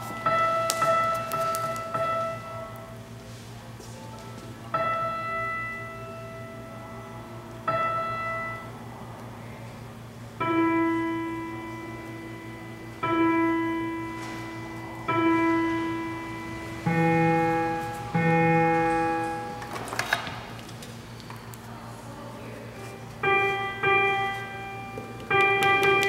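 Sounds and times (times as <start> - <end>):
steady low hum: 0.0 - 26.0
synthesizer single notes: 10.4 - 19.9.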